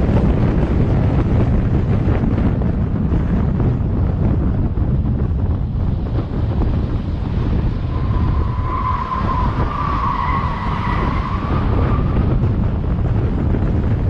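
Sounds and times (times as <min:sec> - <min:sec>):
road rumble: 0:00.0 - 0:14.0
wind noise on microphone: 0:00.0 - 0:14.0
car tyres squealing: 0:06.7 - 0:12.9.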